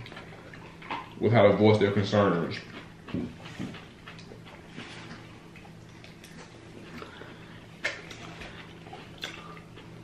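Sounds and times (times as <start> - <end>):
people chewing and lip-smacking: 0.0 - 1.2, 2.3 - 10.0
faint steady hum: 0.0 - 10.0.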